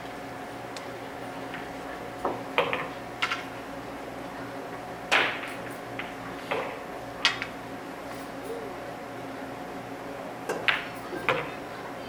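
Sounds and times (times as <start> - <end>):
room hum: 0.0 - 12.0
pool balls clacking: 1.5 - 3.5, 5.1 - 7.5, 10.5 - 11.6.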